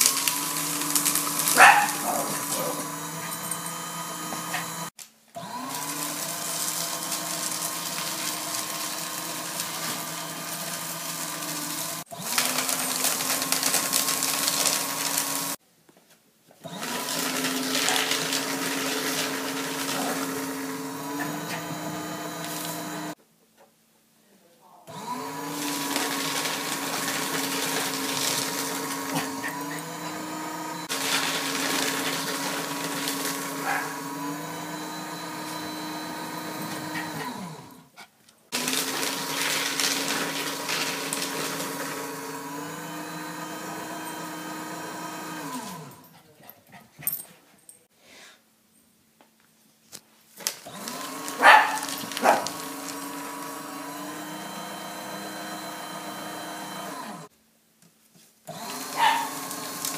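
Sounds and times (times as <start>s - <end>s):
paper shredder motor running: 0.0s - 15.6s, 16.6s - 23.2s, 24.9s - 37.9s, 38.5s - 46.0s, 50.4s - 57.3s, 58.5s - 59.9s
dog barking: 1.5s - 2.9s, 33.6s - 34.0s, 51.4s - 52.6s, 58.9s - 59.4s.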